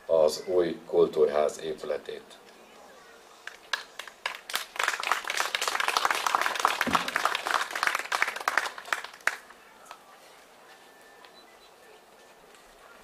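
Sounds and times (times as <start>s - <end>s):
audience applauding: 3.7s - 9.5s.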